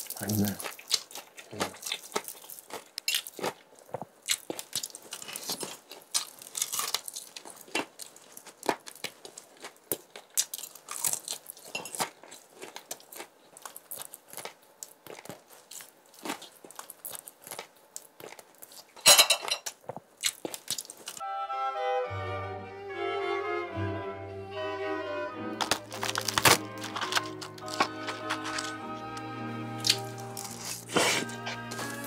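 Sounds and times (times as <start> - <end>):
chewing: 0.0 - 19.0, 19.7 - 21.2, 25.6 - 28.8, 29.8 - 32.0
crunching bites of fried chicken: 0.0 - 19.0, 20.2 - 21.2, 25.6 - 28.8.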